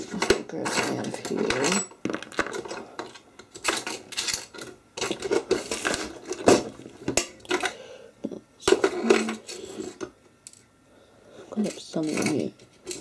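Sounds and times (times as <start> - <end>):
small metal and plastic parts clattering: 0.0 - 7.7, 11.6 - 13.0.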